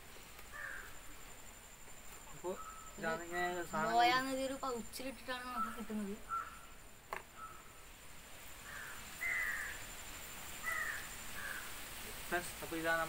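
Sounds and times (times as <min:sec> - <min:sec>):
bird calling: 0:00.4 - 0:01.1, 0:02.3 - 0:04.2, 0:05.3 - 0:07.9, 0:08.6 - 0:09.9, 0:10.6 - 0:11.8.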